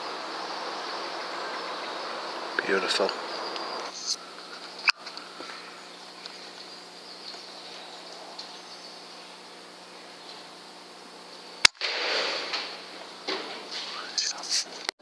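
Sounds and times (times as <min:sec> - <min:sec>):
noisy rush: 0:00.0 - 0:07.0
air rifle shot: 0:11.6 - 0:13.5.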